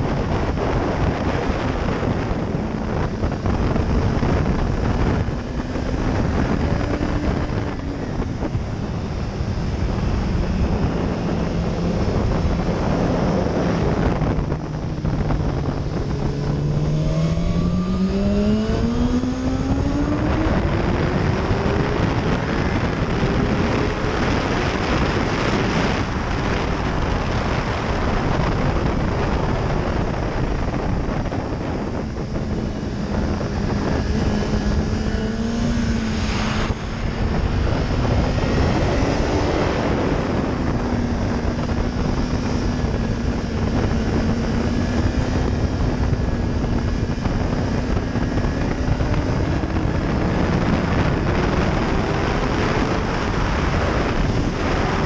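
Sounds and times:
motorcycle engine running at speed: 0.0s - 55.0s
wind rush: 0.0s - 55.0s.

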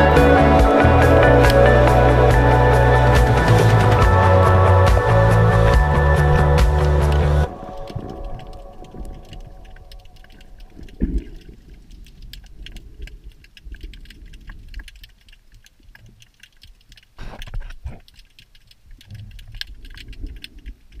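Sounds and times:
low underwater rumble: 0.0s - 15.3s
underwater clicks crackling: 3.1s - 21.0s.

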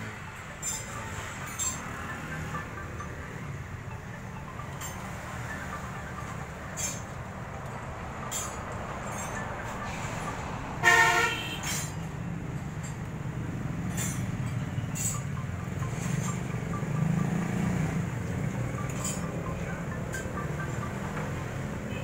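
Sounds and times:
vehicle horn toot: 10.8s - 11.9s.

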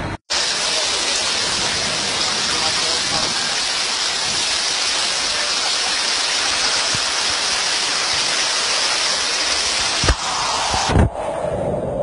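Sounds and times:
water running across road: 0.3s - 10.3s
heavy rain on street: 0.3s - 11.0s.

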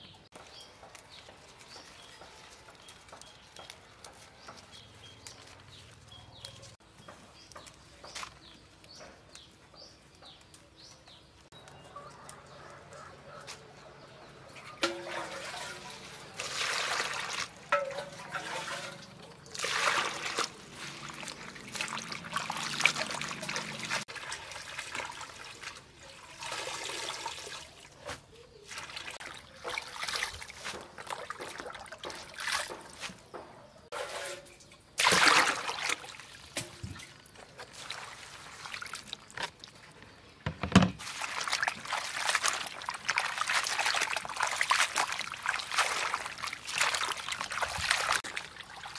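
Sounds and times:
water splashing in a basin: 14.6s - 28.0s, 28.6s - 33.2s, 34.0s - 39.9s, 41.0s - 48.9s.

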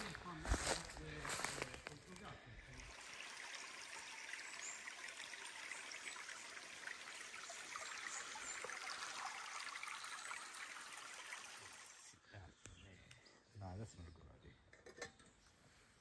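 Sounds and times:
creek trickling over stones: 0.0s - 12.2s.

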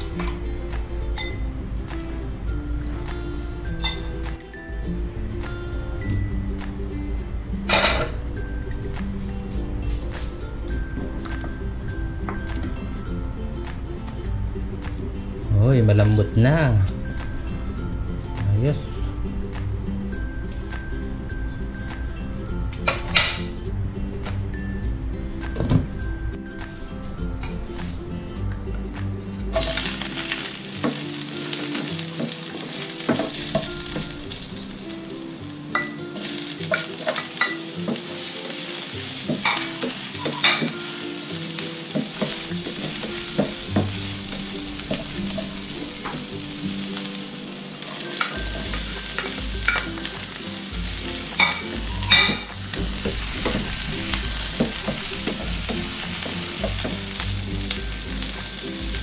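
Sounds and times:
food sizzling in hot oil: 29.4s - 59.0s.

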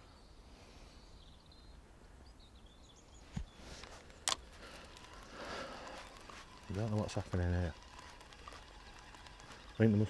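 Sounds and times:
faint bird chirps: 0.0s - 3.8s
sharp click of reel: 4.2s - 10.0s.

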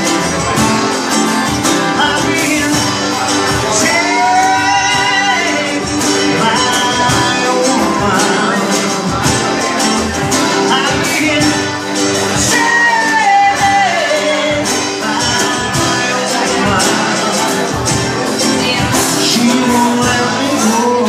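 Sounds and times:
acoustic band playing: 0.0s - 21.0s
person singing: 0.0s - 21.0s.

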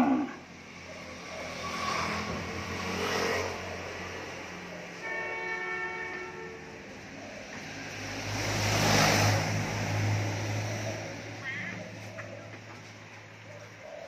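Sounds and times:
vehicle horn: 5.0s - 6.7s
truck engine driving past: 6.7s - 13.5s.

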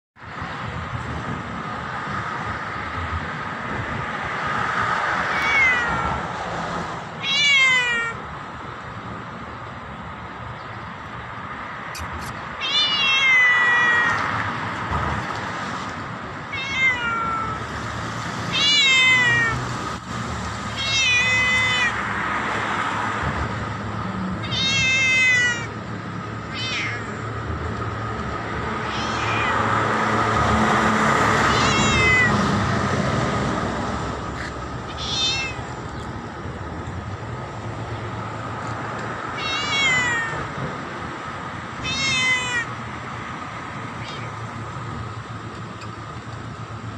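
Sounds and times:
cat meowing: 5.2s - 6.3s, 7.2s - 8.2s, 12.6s - 14.3s, 16.5s - 17.7s, 18.5s - 19.6s, 20.7s - 22.0s, 24.4s - 25.8s, 26.5s - 27.2s, 28.8s - 29.7s, 31.5s - 32.4s, 34.9s - 35.7s, 39.3s - 40.5s, 41.8s - 42.8s, 43.9s - 44.6s.

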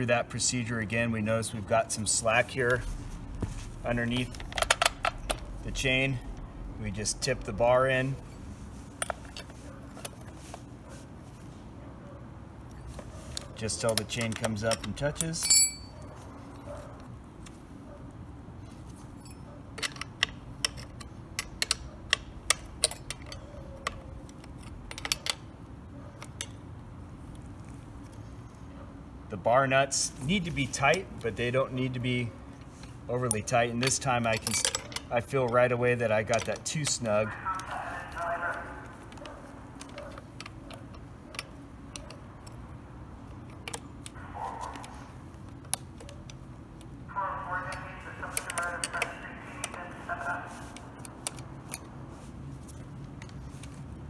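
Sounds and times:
low background rumble: 2.5s - 9.3s
metallic clicks and clinks: 19.1s - 25.5s, 33.3s - 35.6s.

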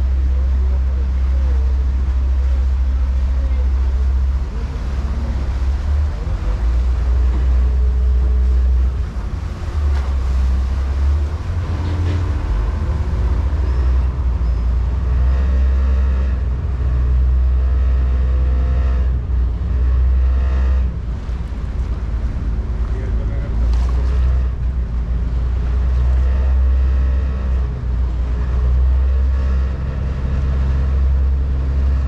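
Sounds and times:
faint passenger voices: 0.0s - 14.7s, 21.1s - 26.3s
boat engine running: 0.0s - 32.0s
water noise: 0.0s - 32.0s
wind rumbling on microphone: 0.0s - 32.0s.

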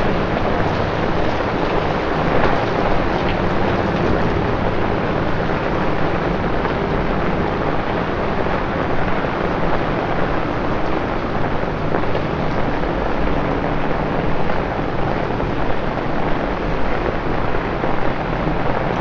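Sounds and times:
torrential rain hissing: 0.0s - 19.0s.

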